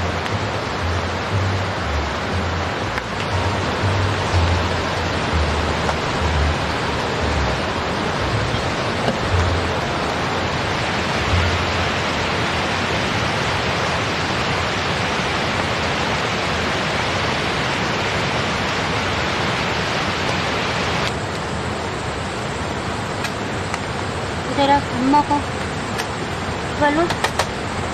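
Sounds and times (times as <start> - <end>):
dull low bumps: 0.0 - 10.6, 11.2 - 12.0
fast-flowing river: 0.0 - 27.9
rain on tent: 0.0 - 27.9.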